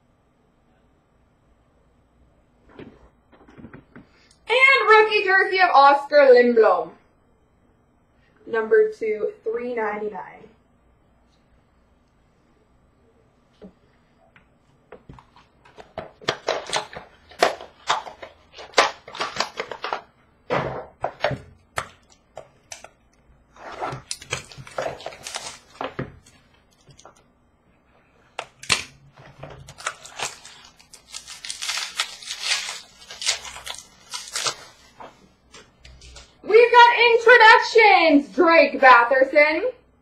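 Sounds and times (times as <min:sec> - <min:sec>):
card packaging clicks and taps: 0:15.0 - 0:20.1
wrapper crinkling and tearing: 0:16.3 - 0:20.0, 0:23.9 - 0:27.2, 0:28.4 - 0:36.3.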